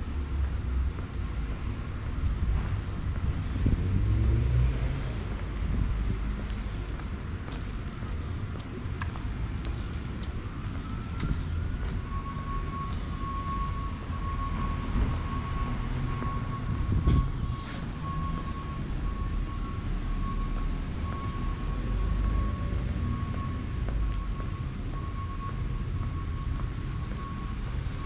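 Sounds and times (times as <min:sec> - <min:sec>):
city traffic rumble: 0:00.0 - 0:28.0.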